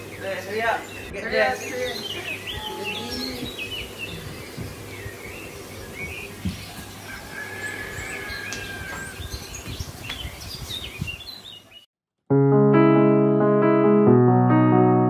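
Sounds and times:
birds chirping and whistling: 0:00.0 - 0:11.9
electric piano chords: 0:12.3 - 0:15.0.

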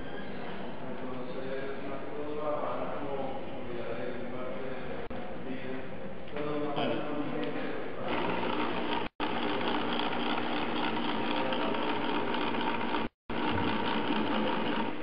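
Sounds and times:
motor whirring brush rotor: 0:08.0 - 0:15.0.

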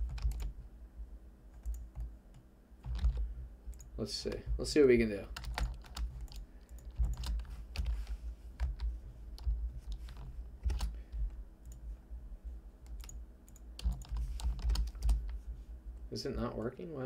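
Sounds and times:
computer keyboard typing: 0:00.0 - 0:00.5, 0:01.6 - 0:04.4, 0:05.3 - 0:11.8, 0:12.8 - 0:15.4
low steady hum: 0:00.0 - 0:17.0.

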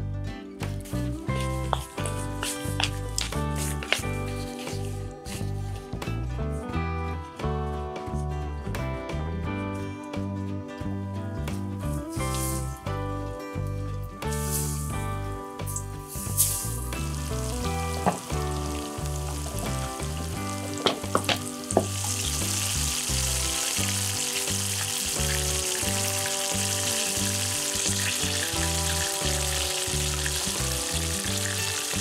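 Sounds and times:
background music: 0:00.0 - 0:32.0
sharp crackles of frying: 0:14.2 - 0:15.0, 0:15.6 - 0:32.0
chicken deep-frying in oil: 0:15.7 - 0:32.0.

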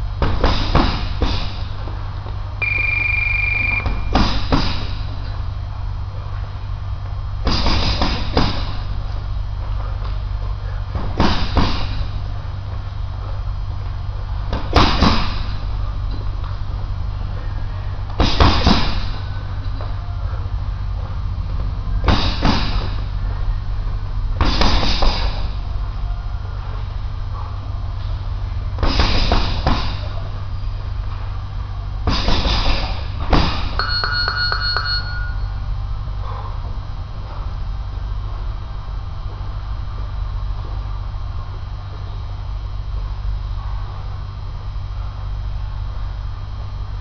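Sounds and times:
low hum: 0:00.0 - 0:47.0
punches thudding on heavy bag: 0:00.2 - 0:01.7, 0:03.8 - 0:05.1, 0:07.4 - 0:08.9, 0:11.0 - 0:12.2, 0:14.5 - 0:15.6, 0:18.2 - 0:19.2, 0:22.0 - 0:23.1, 0:24.4 - 0:25.5, 0:28.8 - 0:30.2, 0:32.0 - 0:33.8.

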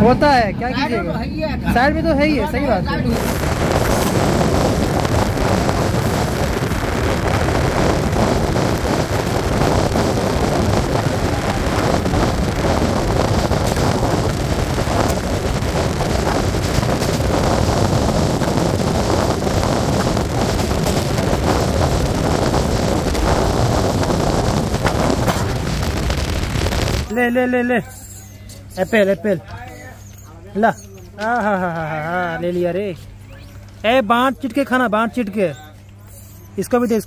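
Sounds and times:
wind rushing over microphone: 0:00.0 - 0:27.2.

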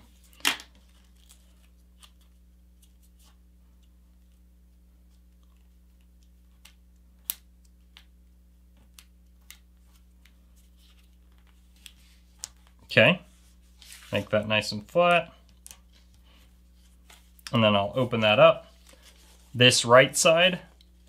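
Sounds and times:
paper crinkling and creasing: 0:00.1 - 0:03.4, 0:13.4 - 0:17.4.

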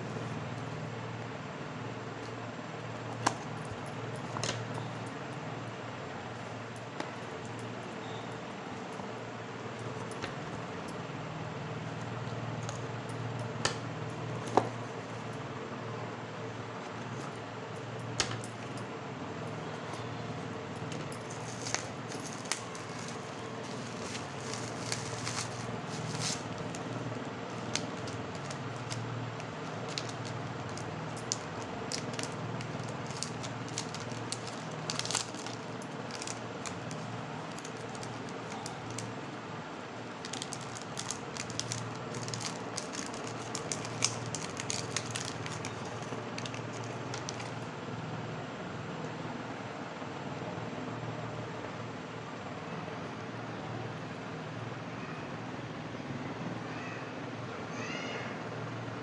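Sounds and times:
steady low hum: 0:00.0 - 0:48.6
packaging crinkling: 0:20.7 - 0:39.3, 0:40.0 - 0:47.7.

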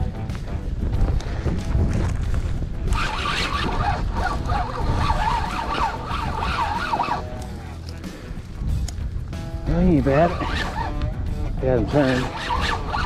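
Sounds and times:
wind buffeting microphone: 0:00.0 - 0:13.0
wavering pitched tone: 0:02.9 - 0:07.7, 0:10.1 - 0:11.2, 0:11.8 - 0:13.0.

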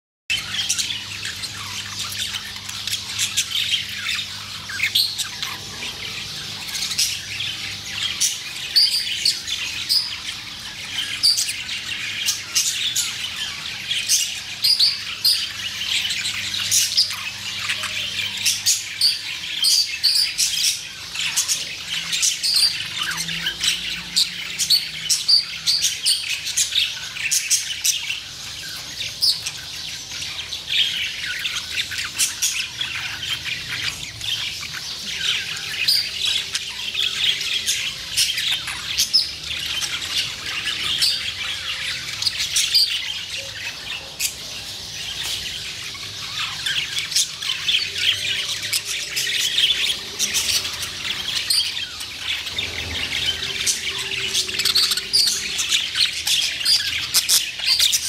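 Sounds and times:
budgerigars chattering: 0:00.3 - 0:58.0.

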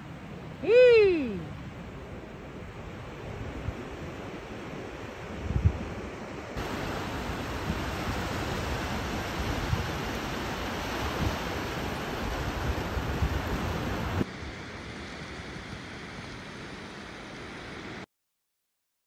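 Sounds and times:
sea surf washing: 0:00.0 - 0:18.0
wind buffeting microphone: 0:01.8 - 0:14.2.

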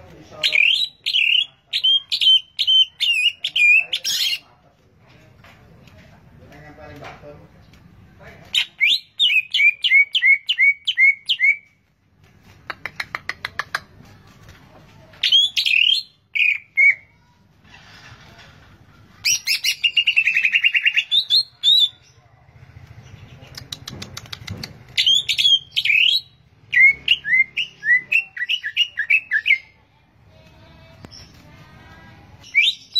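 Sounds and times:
bird singing whistled phrases: 0:15.2 - 0:17.0, 0:25.0 - 0:29.6, 0:32.5 - 0:32.9.

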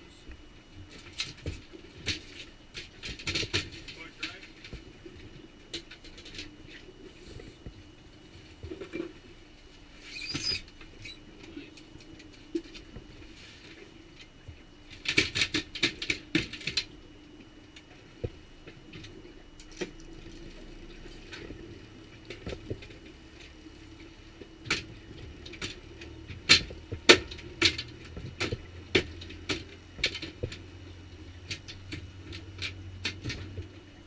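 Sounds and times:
outboard motor humming: 0:10.6 - 0:34.0.

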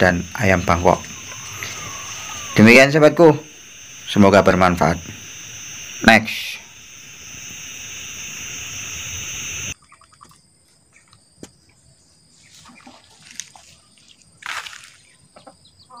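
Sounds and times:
steady hiss: 0:00.0 - 0:09.8.

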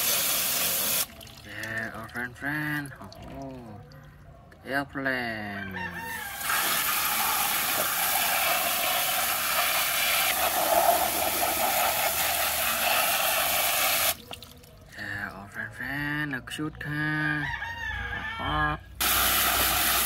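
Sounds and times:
hose spraying water on plastic: 0:00.0 - 0:01.3, 0:06.2 - 0:14.4, 0:19.0 - 0:20.0.

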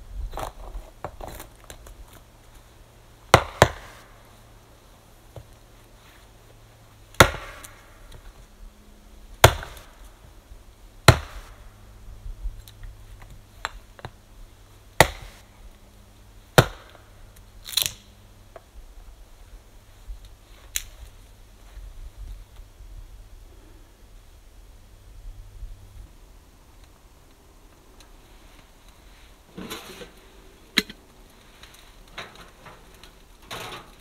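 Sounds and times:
hatchet chopping tree trunk: 0:03.3 - 0:04.1, 0:07.2 - 0:08.0, 0:09.4 - 0:10.0, 0:11.0 - 0:11.6, 0:15.0 - 0:15.4, 0:16.6 - 0:17.0.

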